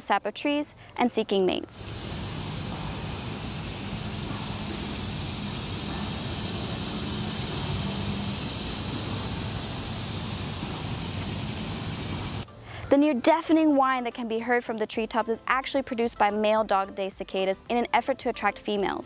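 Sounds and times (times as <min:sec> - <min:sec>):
cicadas whining: 0:01.8 - 0:12.4
wind rumble on microphone: 0:01.8 - 0:12.4.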